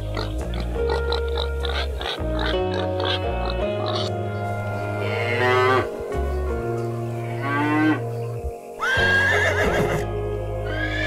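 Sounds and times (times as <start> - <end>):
background music: 0.0 - 11.0
cow mooing: 2.7 - 6.0
horse whinnying: 8.8 - 10.1, 10.7 - 11.0.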